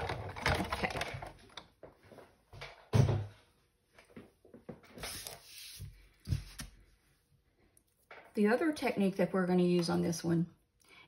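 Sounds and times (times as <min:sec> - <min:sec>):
paper rustling: 0:04.8 - 0:06.9.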